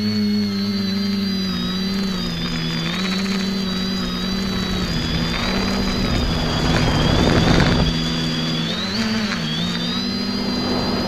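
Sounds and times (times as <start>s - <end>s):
quadcopter motors whining: 0.0s - 11.0s
rush of air: 4.0s - 11.0s.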